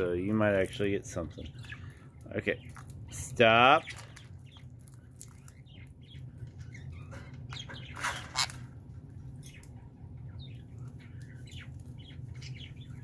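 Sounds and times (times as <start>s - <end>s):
parrot chirps and squawks: 6.5s - 8.7s.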